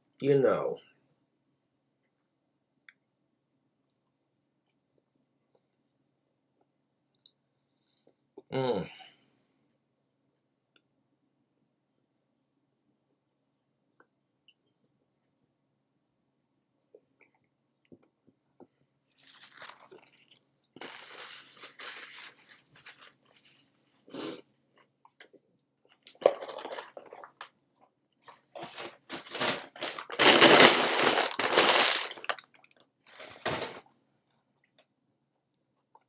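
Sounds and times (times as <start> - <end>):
paper packaging crinkling: 19.1 - 23.6, 26.2 - 27.5, 28.6 - 33.8.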